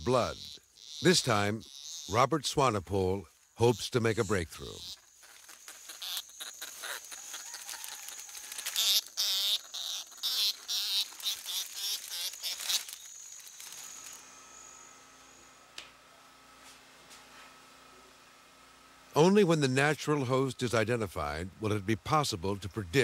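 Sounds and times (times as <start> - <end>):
insect chirps and clicks: 0.0 - 2.2, 3.3 - 14.2
insects high-pitched whine: 0.0 - 16.4, 19.2 - 23.0
room hum: 0.0 - 23.0.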